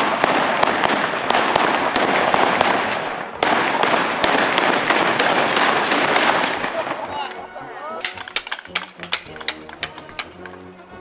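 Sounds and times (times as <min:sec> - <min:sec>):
salute gun shots with echo: 0:00.0 - 0:06.9.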